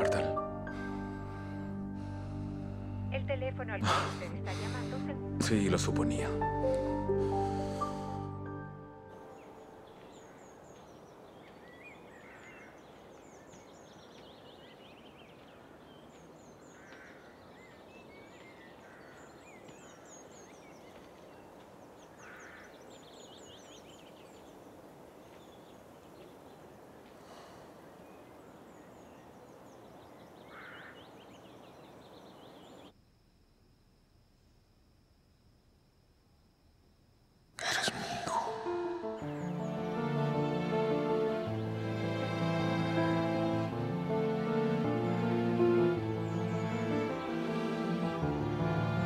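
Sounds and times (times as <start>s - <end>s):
small birds chirping: 0.0s - 33.0s, 42.3s - 49.0s
faint steady hiss: 0.0s - 49.0s
lower bird calls: 9.2s - 32.9s, 37.6s - 39.8s.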